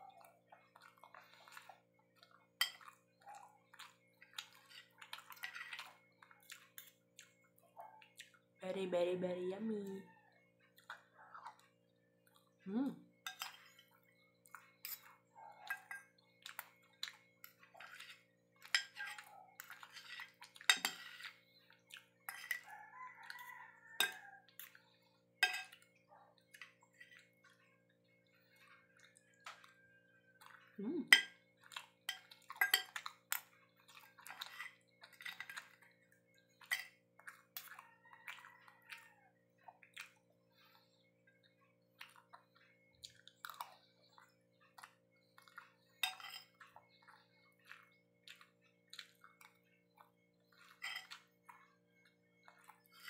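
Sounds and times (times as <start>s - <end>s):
cutlery clinking on ceramic plate: 2.6s - 3.0s, 13.2s - 13.9s, 17.4s - 21.4s, 23.3s - 24.3s, 25.4s - 25.9s, 31.0s - 31.5s, 32.1s - 35.8s, 36.6s - 37.0s, 46.0s - 46.7s, 50.7s - 51.3s.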